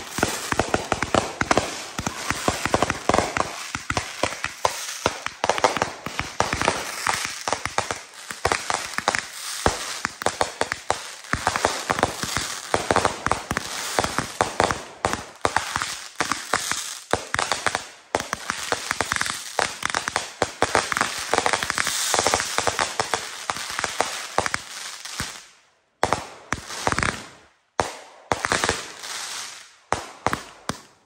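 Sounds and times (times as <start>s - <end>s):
fireworks bangs: 0.0s - 24.6s
fireworks crackle: 0.0s - 25.5s.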